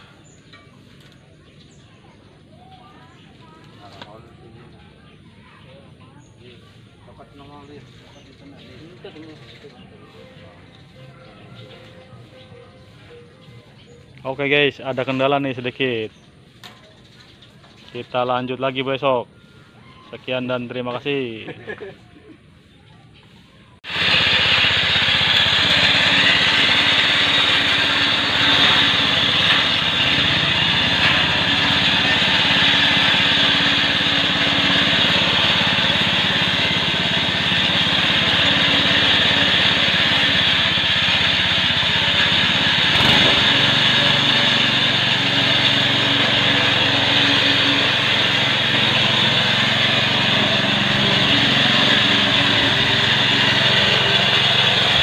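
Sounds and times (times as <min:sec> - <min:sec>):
small petrol engine running: 0:23.8 - 0:55.0.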